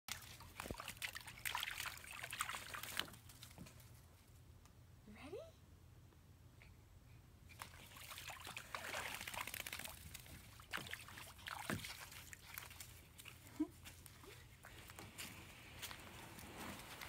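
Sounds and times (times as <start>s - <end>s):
water sloshing and trickling: 0.1s - 4.0s, 7.5s - 17.0s.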